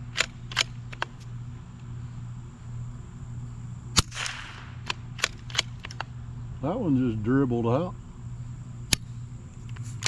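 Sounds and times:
rifle bolt clicks: 0.1 - 1.2
rifle shot with echo: 4.0 - 5.8.

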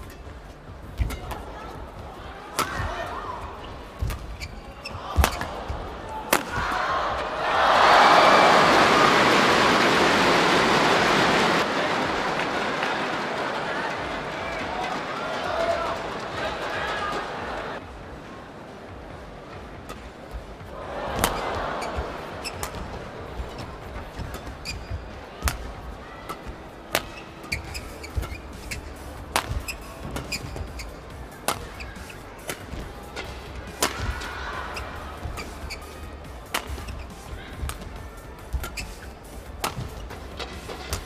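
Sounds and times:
shoes squeaking on court: 0.0 - 6.8, 19.9 - 41.0
rackets hitting shuttlecock: 0.0 - 7.4, 21.1 - 41.0
crowd murmuring: 4.7 - 17.8, 20.6 - 41.0
crowd cheering: 4.9 - 17.8, 20.7 - 23.2, 33.7 - 36.8.

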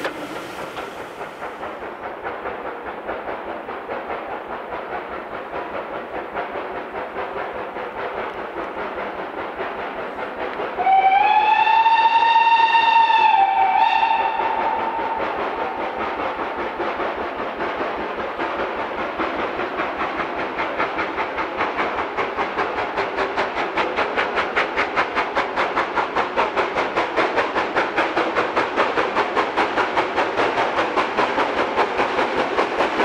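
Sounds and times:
steam locomotive exhaust beats: 0.0 - 33.0
steam whistle: 10.8 - 15.9.

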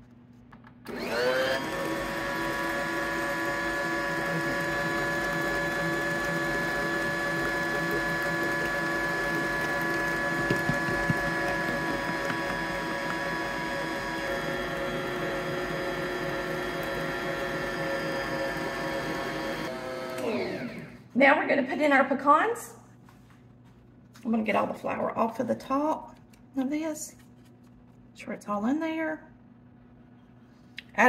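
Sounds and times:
stand mixer motor whine: 0.9 - 21.0.

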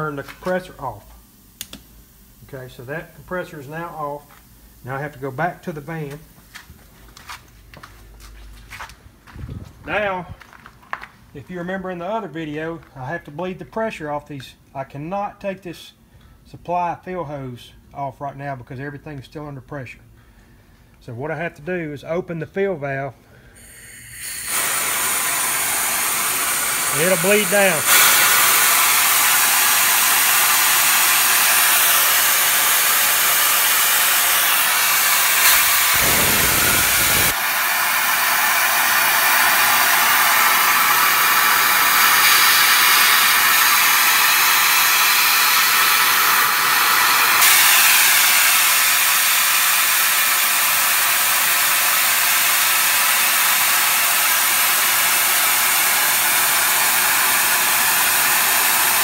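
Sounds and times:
air hissing from valve: 23.4 - 59.0.

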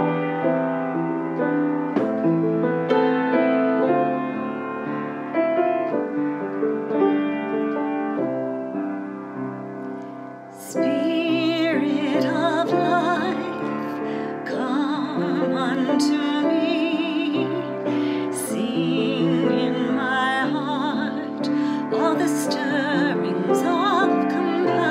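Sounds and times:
slow piano music: 0.0 - 24.9
person singing with vibrato: 10.6 - 24.9.

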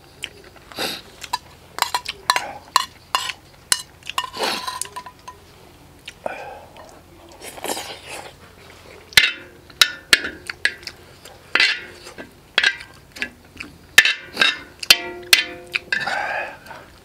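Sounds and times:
metal spoon clinking: 1.3 - 5.4, 14.0 - 16.2
metal spoon scraping: 1.3 - 5.4, 14.0 - 16.6.

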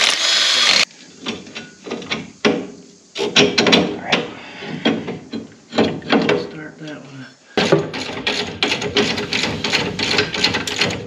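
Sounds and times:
metal parts clinking and knocking: 7.6 - 11.0.

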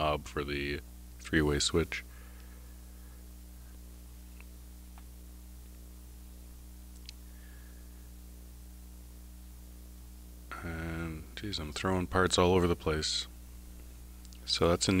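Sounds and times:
electrical hum: 0.0 - 15.0
faint light clicks: 6.9 - 7.2.

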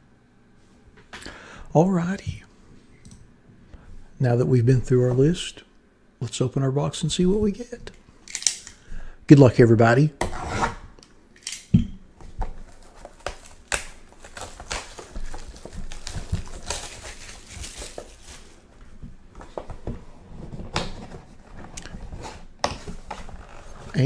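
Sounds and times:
plastic wrap crinkling and tearing: 12.5 - 18.7.

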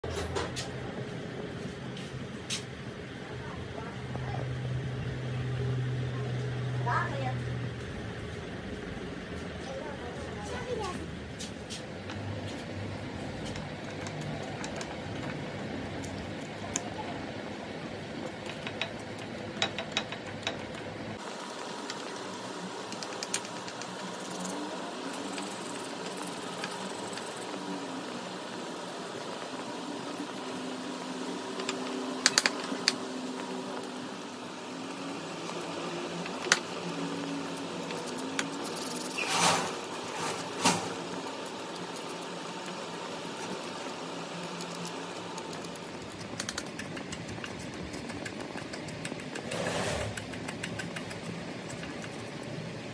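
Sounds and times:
workshop hum: 0.0 - 52.9
sharp clicks: 50.1 - 52.2.

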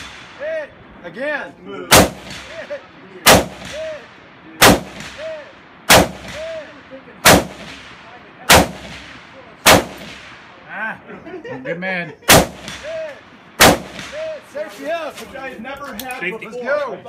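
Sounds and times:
rifle shots with echo: 0.0 - 0.8, 1.9 - 10.7, 12.3 - 14.5.

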